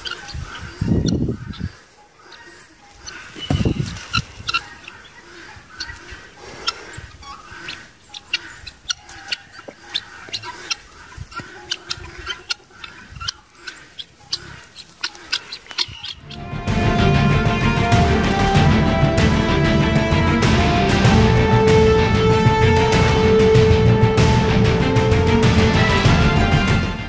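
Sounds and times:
birds chirping: 0.0 - 16.6.

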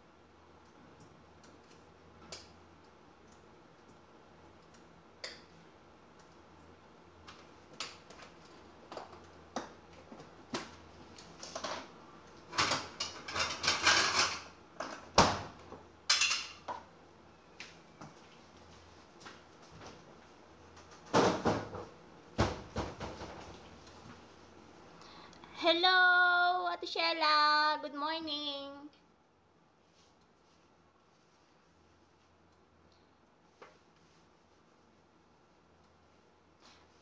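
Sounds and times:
bowls and utensils clattering: 12.5 - 15.0, 16.1 - 16.8.

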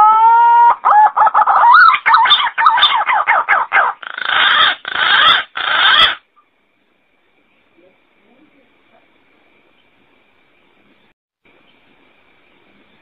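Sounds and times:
pigeon calling: 0.0 - 6.3.

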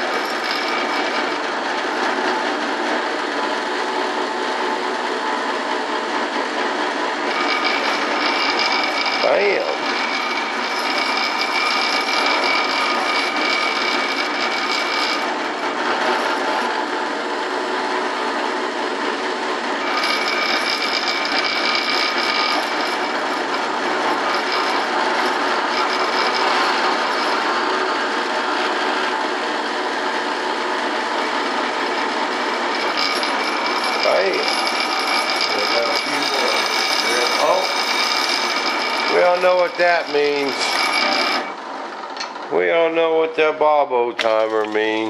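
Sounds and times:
drill bit cutting wood: 0.0 - 43.5
drill press motor whine: 0.0 - 45.0.

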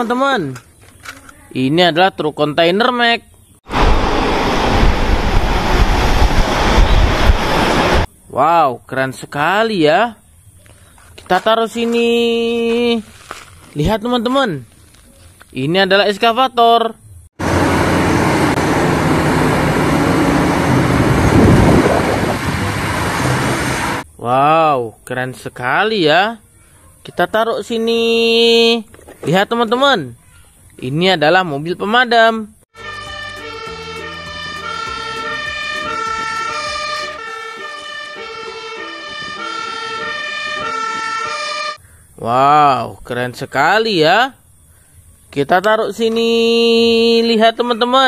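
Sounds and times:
excavator diesel engine rumbling: 17.4 - 24.0
fire engine siren two-tone: 32.8 - 41.8.

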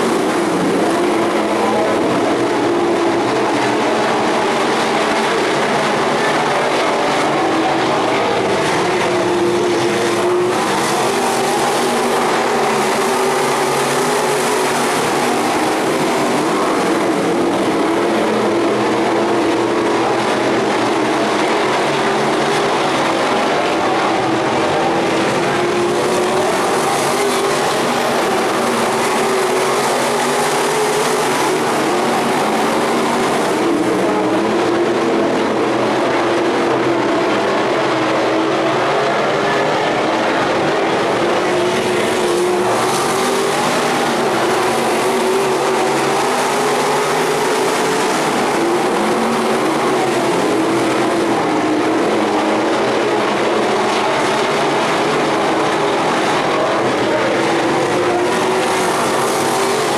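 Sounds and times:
race car engines droning: 0.0 - 59.9.

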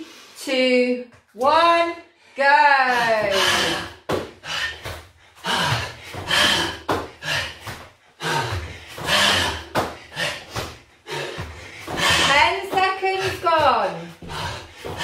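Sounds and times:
man breathing hard: 3.3 - 12.5, 14.1 - 15.0
thuds on foam floor mat: 4.1 - 5.0, 11.4 - 15.0.

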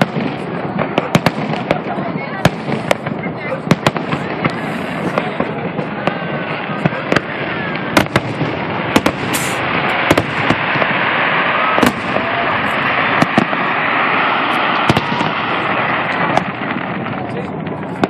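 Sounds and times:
fireworks bursting with sharp bangs: 0.0 - 18.0
dense rushing noise: 4.3 - 18.0.

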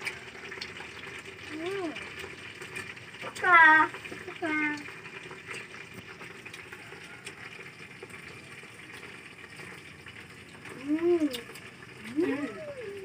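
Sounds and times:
child humming: 10.7 - 13.0.

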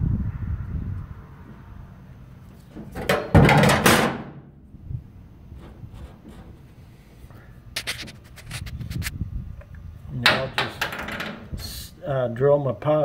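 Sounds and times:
metal square clunking and scraping: 2.7 - 4.4, 5.6 - 6.7, 10.2 - 11.6.

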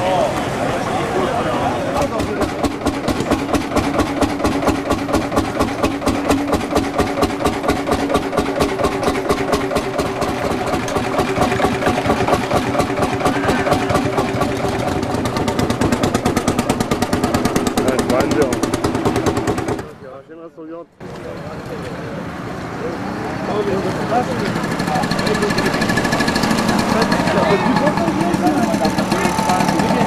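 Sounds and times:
tractor engine idling: 0.3 - 20.2, 23.5 - 30.0.

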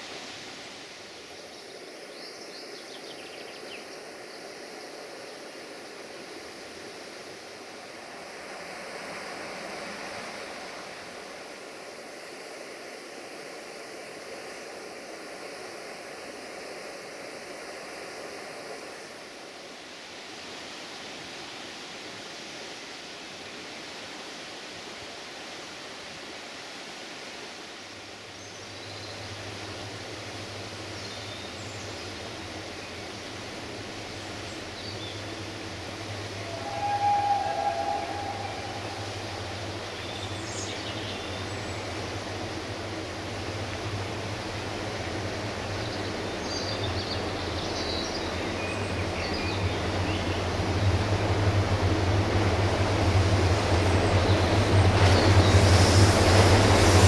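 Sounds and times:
river rushing: 0.0 - 2.2, 3.6 - 57.0
diesel locomotive hum: 28.9 - 57.0.

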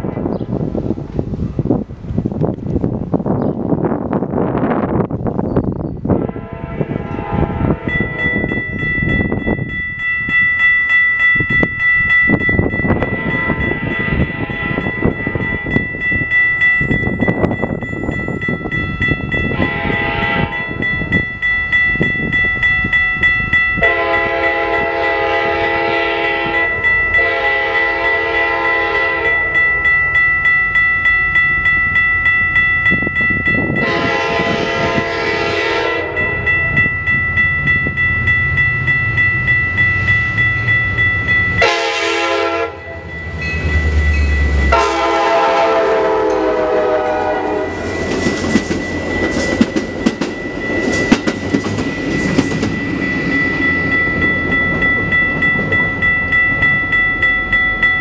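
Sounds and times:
locomotive air horn blasts: 6.1 - 8.5, 13.1 - 15.1, 19.5 - 20.8, 23.8 - 29.6, 33.8 - 36.5, 41.6 - 43.0, 44.7 - 47.9
bell ringing steadily: 7.7 - 34.5, 35.9 - 45.2, 47.0 - 58.0.

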